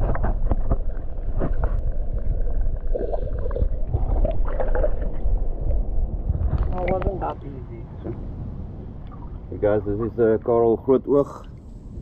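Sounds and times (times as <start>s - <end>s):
knocks and clicks underwater: 0.0s - 7.2s
underwater churning rumble: 0.0s - 12.0s.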